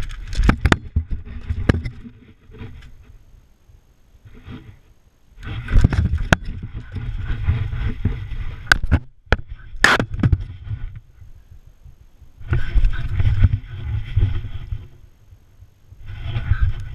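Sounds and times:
camera rubbing and scraping on gravel: 0.0s - 3.2s, 4.2s - 11.1s, 12.4s - 15.1s, 16.0s - 16.9s.

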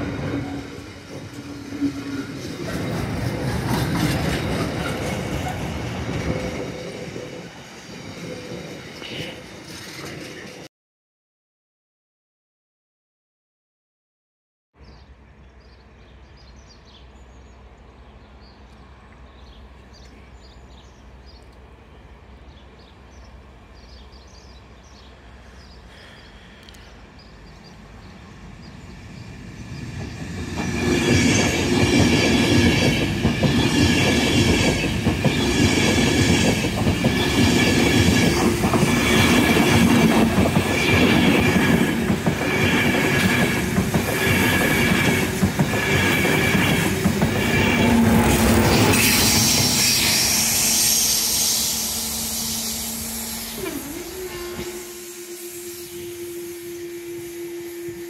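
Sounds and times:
train passing at speed: 0.0s - 10.7s, 14.9s - 58.0s.

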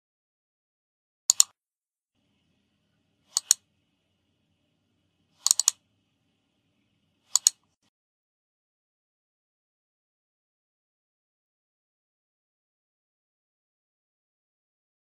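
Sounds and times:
sharp clicks: 1.3s - 1.6s, 3.2s - 3.7s, 5.4s - 5.8s, 7.3s - 7.7s.

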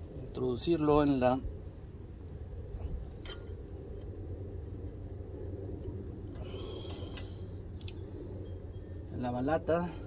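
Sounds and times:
low background rumble: 0.0s - 10.0s.

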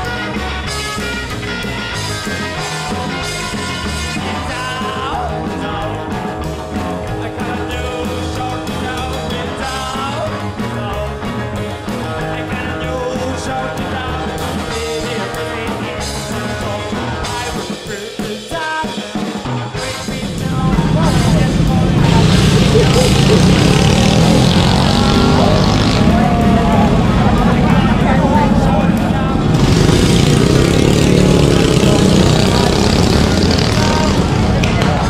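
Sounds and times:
rock music with singing: 0.0s - 35.0s.

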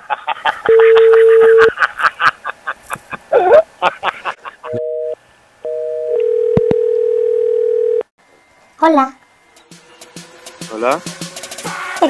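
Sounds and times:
dial tone: 4.7s - 8.1s.

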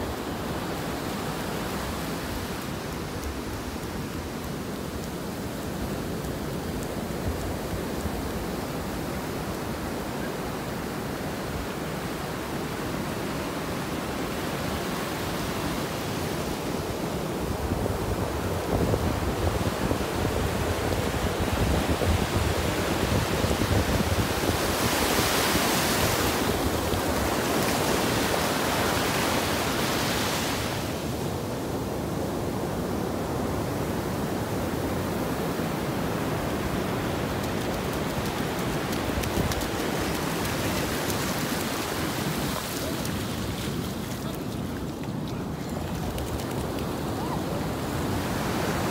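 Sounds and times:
ocean surf washing onto beach: 0.0s - 48.9s
wind rumble on microphone: 16.7s - 31.8s.

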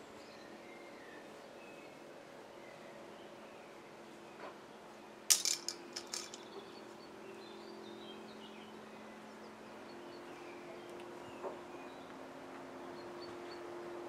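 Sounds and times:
sharp clicks and clatters: 5.3s - 6.5s.

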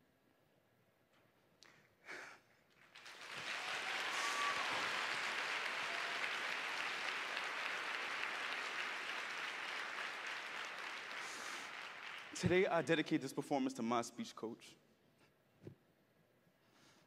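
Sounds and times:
audience applauding: 2.7s - 13.1s.

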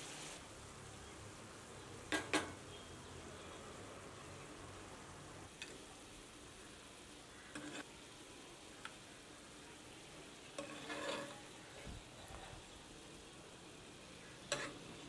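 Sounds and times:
meat sizzling in a pan: 0.0s - 0.5s, 5.5s - 15.0s.

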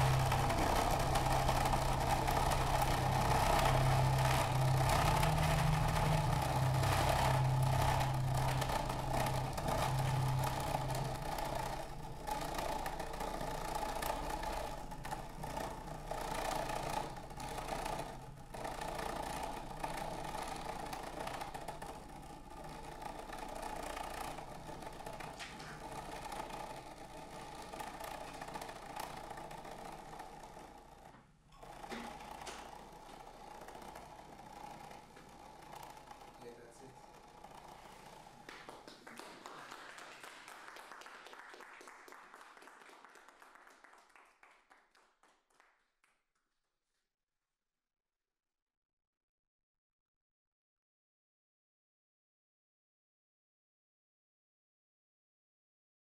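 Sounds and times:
low steady drone: 0.0s - 30.2s
grainy noise-like texture: 0.0s - 38.5s.

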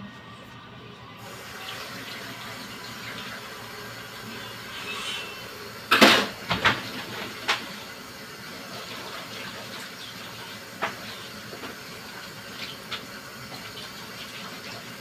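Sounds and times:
water hissing: 1.2s - 15.0s
dishes clanking: 4.5s - 7.7s.

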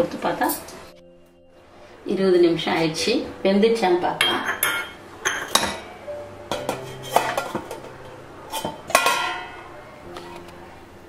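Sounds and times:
metal lid clinking against pan: 4.2s - 5.9s, 6.5s - 7.9s, 8.5s - 9.7s.

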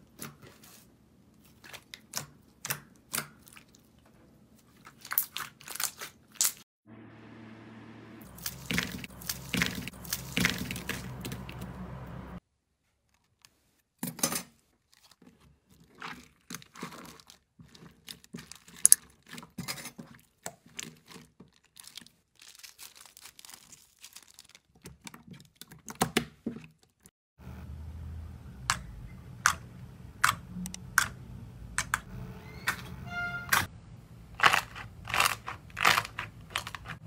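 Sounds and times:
wet slime squelching: 1.4s - 4.0s, 4.6s - 6.6s, 8.2s - 11.7s, 14.8s - 27.1s
low steady hum: 6.9s - 12.4s, 27.4s - 34.4s
plastic bag crinkling: 14.8s - 19.5s, 20.6s - 25.7s.

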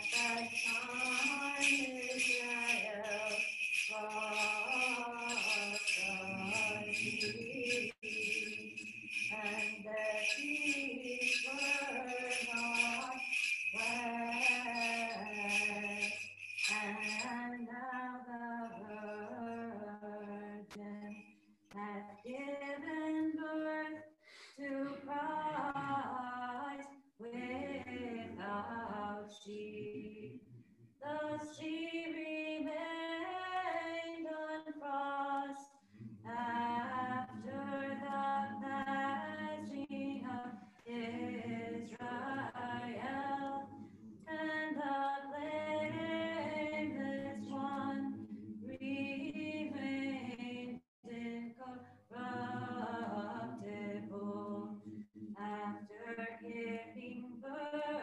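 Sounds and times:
several voices chanting: 36.2s - 44.0s, 45.8s - 49.6s.

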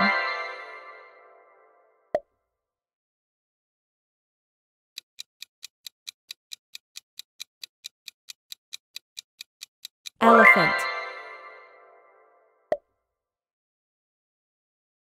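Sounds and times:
clock ticking: 5.0s - 11.2s.

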